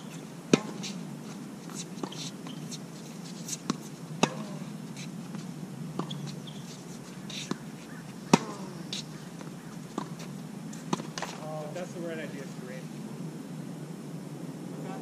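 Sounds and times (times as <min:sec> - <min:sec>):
tennis balls struck by racquets: 0:00.5 - 0:01.0, 0:03.5 - 0:04.7, 0:05.3 - 0:11.6.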